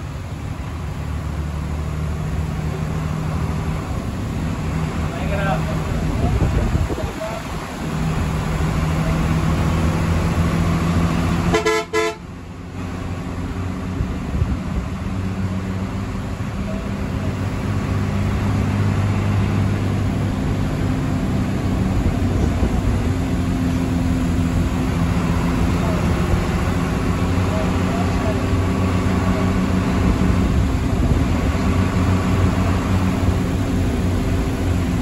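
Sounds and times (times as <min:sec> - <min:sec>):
bus engine running: 0:00.0 - 0:35.0
rain and wet road noise: 0:00.0 - 0:35.0
vehicle horn short toots: 0:11.5 - 0:12.2.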